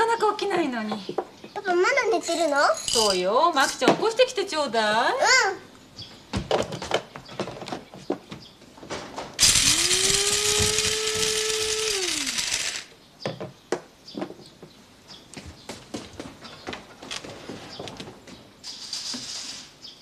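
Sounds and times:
small electric motor whirring: 9.4 - 12.9.

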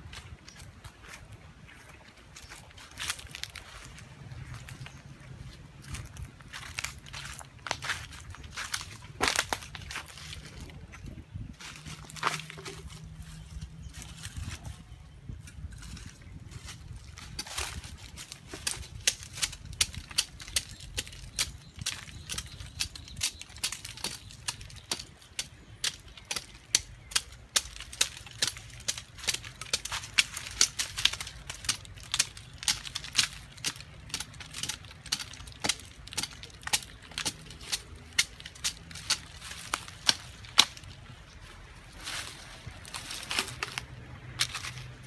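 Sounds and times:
machete chopping tree bark: 18.4 - 40.9.

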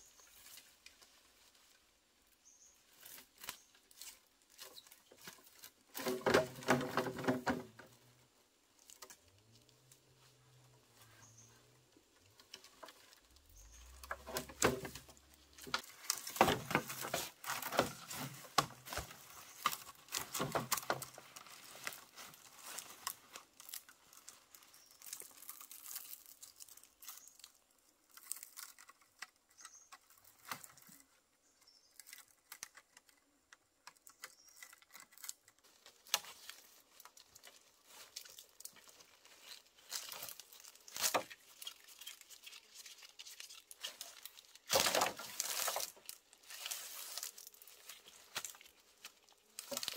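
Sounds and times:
dry leaves rustling: 0.0 - 31.2, 34.1 - 49.9
bamboo poles knocking together: 3.0 - 8.0, 12.1 - 24.2, 33.9 - 42.3, 43.7 - 49.9.

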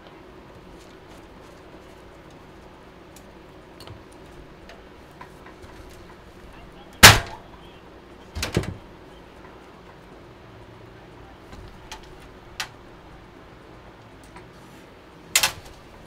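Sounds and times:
faint steady hum: 0.0 - 16.0
sharp knocks: 7.0 - 7.5.

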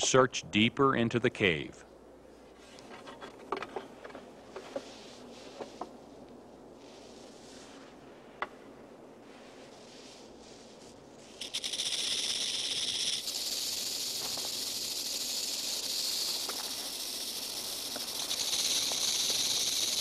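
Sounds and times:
rattlesnake tail rattling: 11.2 - 20.0.

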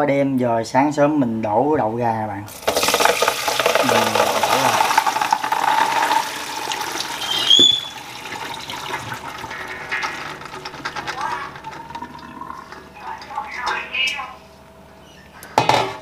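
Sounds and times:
water pouring out: 2.5 - 13.0
short high squeak: 7.2 - 8.0.

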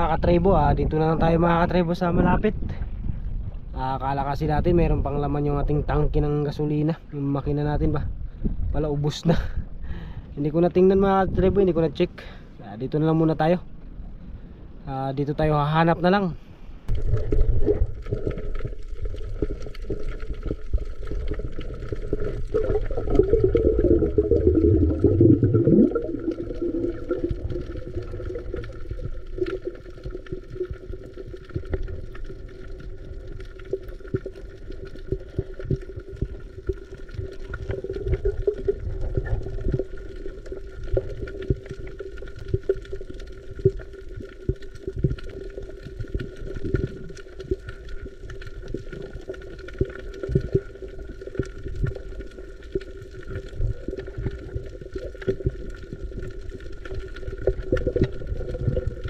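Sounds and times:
water gurgling and sloshing: 16.7 - 59.0
low rumble: 16.8 - 47.2.

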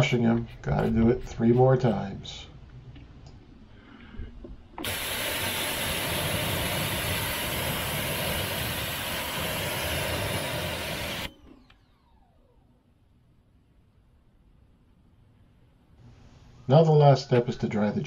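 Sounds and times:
pressure washer spraying water: 4.8 - 11.3.

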